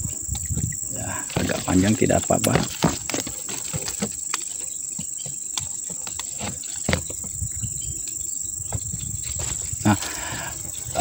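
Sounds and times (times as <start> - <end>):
high-pitched insect drone: 0.0 - 11.0
pliers clicking and scraping bark: 1.2 - 6.9.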